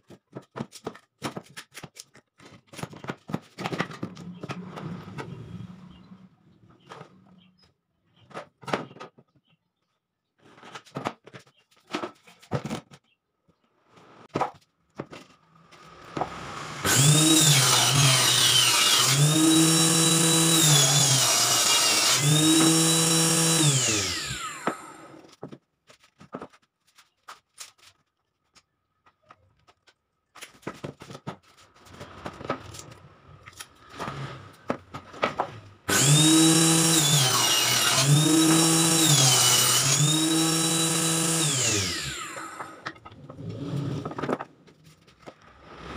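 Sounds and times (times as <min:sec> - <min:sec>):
table saw cutting plywood: 0:03.6 - 0:07.5, 0:15.7 - 0:25.4, 0:32.0 - 0:44.5, 0:45.2 - 0:45.9.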